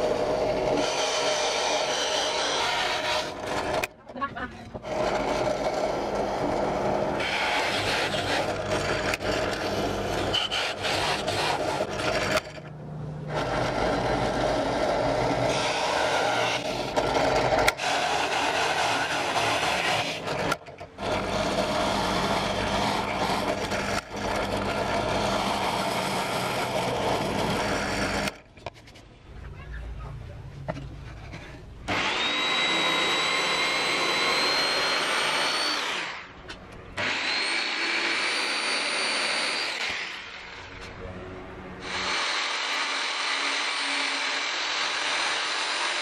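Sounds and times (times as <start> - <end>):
drill bit rasping in wood: 0.0 - 3.9, 4.7 - 12.7, 13.3 - 28.4, 31.9 - 36.2, 37.0 - 40.3, 41.8 - 46.0
drill press motor hum: 4.6 - 28.5, 31.9 - 36.3.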